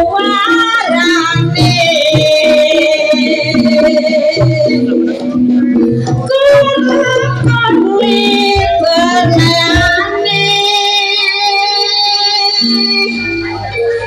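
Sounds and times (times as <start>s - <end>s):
gamelan accompaniment: 0.0s - 14.0s
high singing voice: 0.0s - 14.0s
drum strokes: 0.2s - 10.4s.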